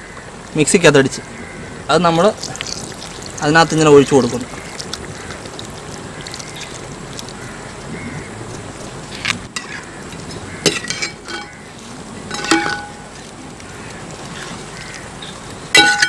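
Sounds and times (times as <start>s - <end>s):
paste pouring into a pot: 2.3s - 7.8s
metal clinks against a pot: 12.3s - 13.0s.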